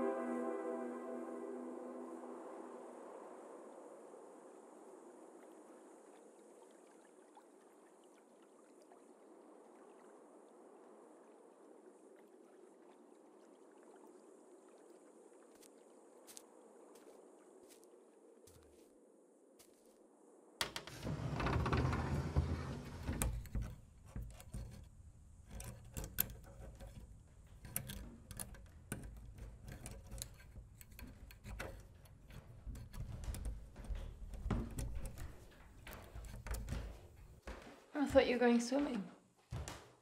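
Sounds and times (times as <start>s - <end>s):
lock clicking and rattling: 20.6s - 37.4s.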